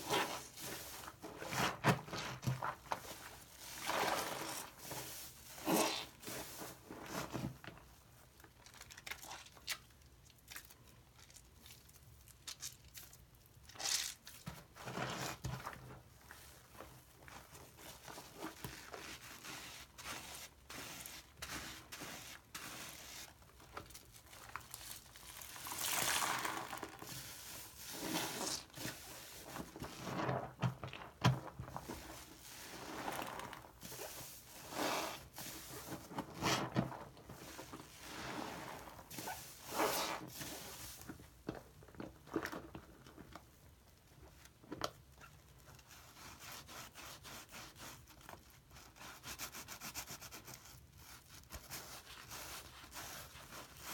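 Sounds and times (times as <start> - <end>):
sponge squelching with foam: 0.0 - 7.4, 16.3 - 30.4, 31.7 - 41.2, 51.1 - 53.9.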